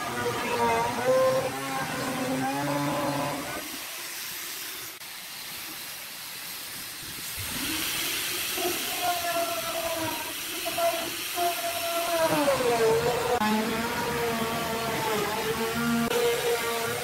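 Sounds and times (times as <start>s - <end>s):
electric router whining: 0.0s - 3.7s, 11.6s - 17.0s
steady hiss: 3.4s - 13.4s.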